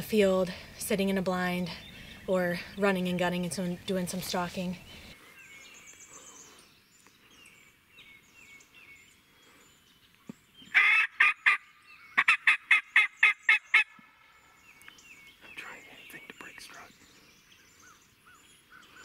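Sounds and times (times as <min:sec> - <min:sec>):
songbird chirping: 0:00.0 - 0:19.0
turkey yelps: 0:10.7 - 0:11.6
turkey gobbling: 0:10.8 - 0:11.6, 0:12.2 - 0:14.0.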